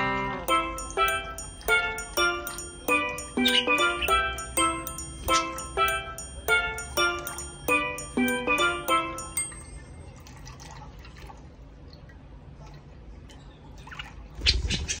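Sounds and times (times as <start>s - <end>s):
mallet percussion music: 0.5s - 10.1s.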